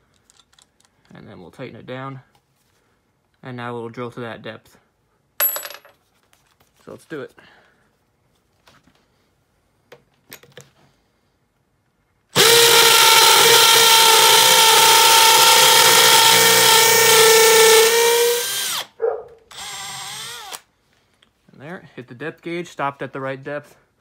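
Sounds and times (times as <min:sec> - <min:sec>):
hammer drill boring into concrete: 0:12.4 - 0:18.9, 0:19.5 - 0:20.7.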